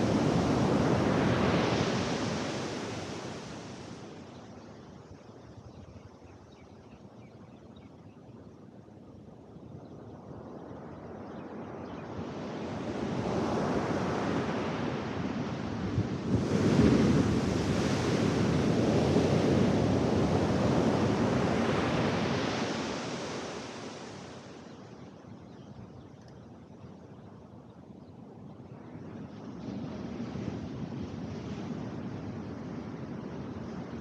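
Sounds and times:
ocean surf on sand beach: 0.0s - 5.1s, 12.0s - 25.2s, 28.7s - 34.0s.

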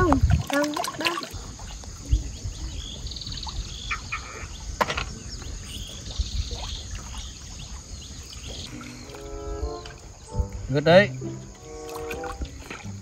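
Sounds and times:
river rumble: 0.0s - 13.0s
buzzy trills: 8.7s - 13.0s.

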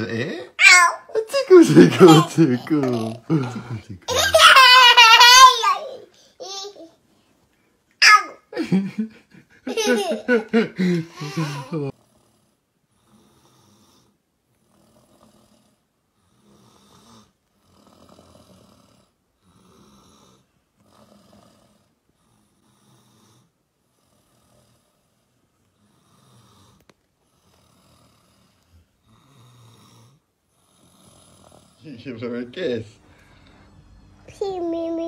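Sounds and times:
soft snoring: 10.7s - 34.0s.

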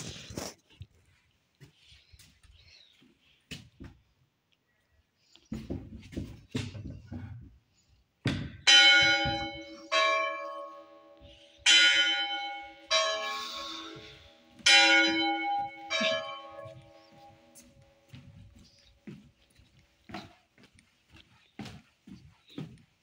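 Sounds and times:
church bell ringing: 8.6s - 18.0s.

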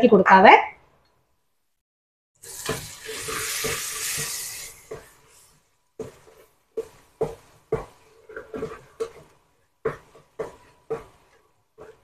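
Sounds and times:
spices sizzling in a pot: 2.4s - 7.0s
wooden spatula scraping a pot: 2.4s - 12.0s.

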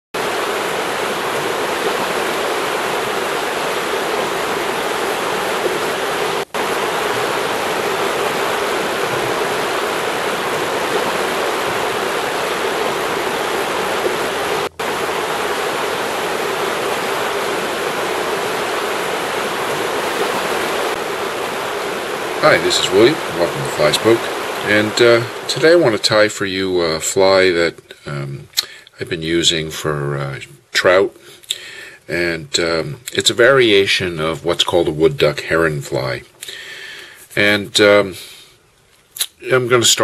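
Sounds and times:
river rushing over rocks: 0.2s - 25.4s.

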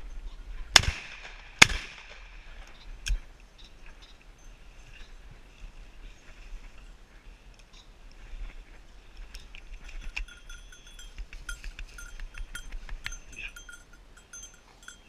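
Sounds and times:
dog collar bell clanking: 10.0s - 15.0s.

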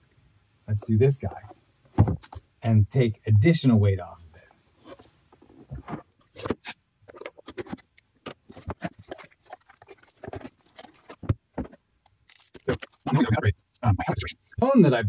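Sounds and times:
rustles scrapes and taps: 4.3s - 13.1s
cardboard box being opened: 5.6s - 13.0s.

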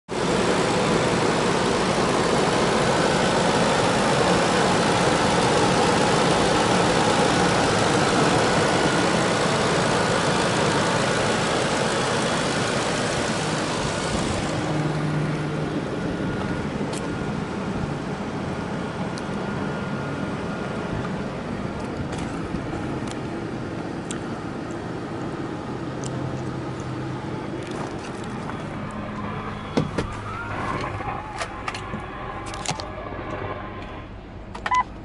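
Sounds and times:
truck engine idling: 0.1s - 35.0s.

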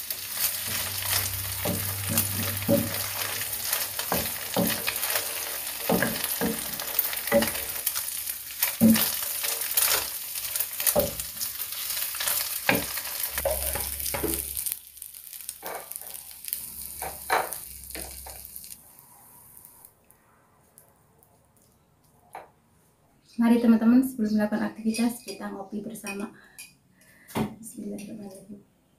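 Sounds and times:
food sizzling in hot oil: 0.0s - 19.9s
wooden spatula scraping a pan: 0.3s - 14.8s.

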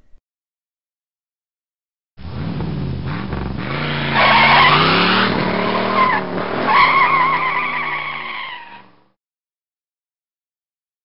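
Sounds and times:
car engine revving: 2.2s - 9.1s
tyres squealing: 3.7s - 8.9s.

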